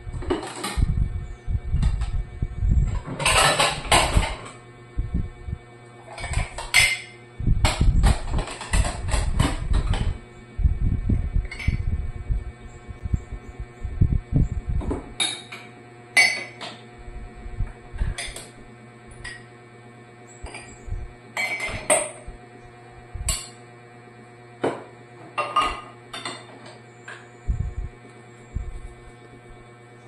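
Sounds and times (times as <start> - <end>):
cups and dishes clinking: 6.2 - 7.2, 15.2 - 16.7, 21.4 - 22.2, 25.4 - 26.5.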